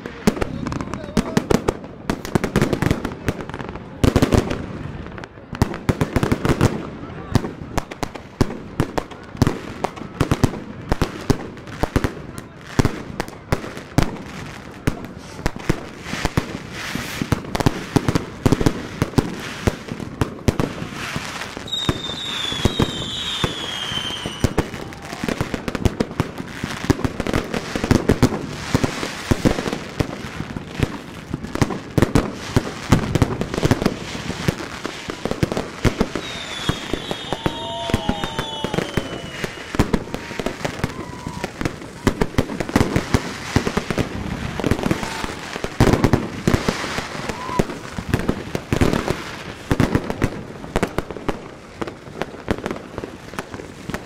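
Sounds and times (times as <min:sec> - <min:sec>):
fireworks bangs and crackles: 0:00.0 - 0:54.0
high falling whistle: 0:36.2 - 0:39.7.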